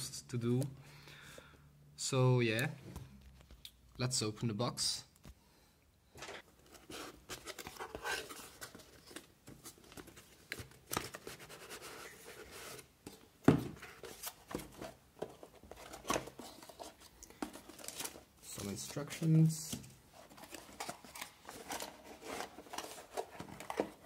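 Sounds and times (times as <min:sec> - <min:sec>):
cardboard rustling and scraping: 0:06.2 - 0:18.9, 0:19.7 - 0:24.0.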